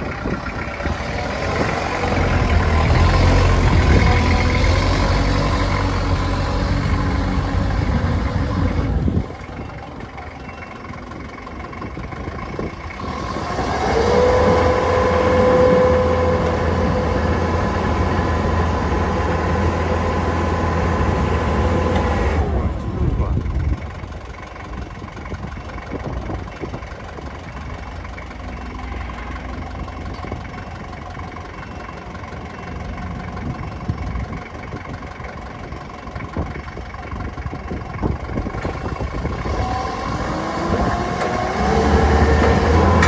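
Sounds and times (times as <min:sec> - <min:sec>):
diesel engine running and revving: 0:00.0 - 0:43.0
hydraulic pump whine: 0:13.4 - 0:18.4.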